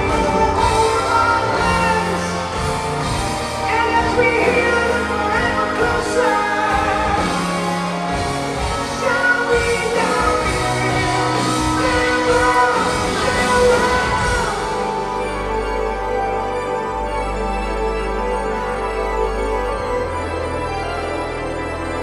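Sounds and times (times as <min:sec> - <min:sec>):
man singing high lead vocals: 0:00.0 - 0:03.0, 0:03.6 - 0:15.3
drums: 0:00.0 - 0:16.2
bass: 0:00.0 - 0:22.0
keyboards: 0:00.0 - 0:22.0.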